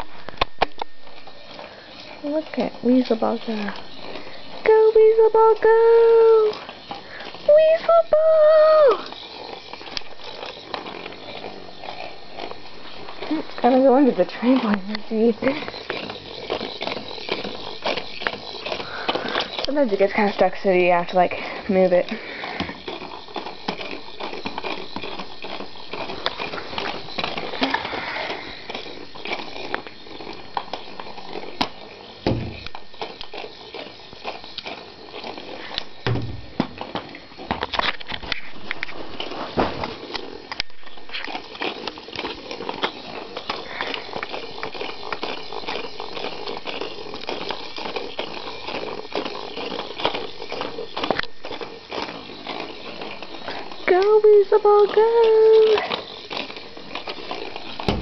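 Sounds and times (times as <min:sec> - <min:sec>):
toy clicking and rattling: 0:00.0 - 0:58.0
toy motor whirring: 0:00.0 - 0:58.0
toy bumping with dull thumps: 0:00.4 - 0:28.0, 0:28.7 - 0:38.4, 0:39.8 - 0:58.0.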